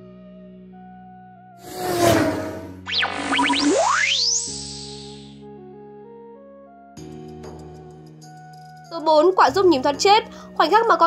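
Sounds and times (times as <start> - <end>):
background music with held notes: 0.0 - 1.6, 5.2 - 11.0
whoosh sound effect: 1.7 - 5.3.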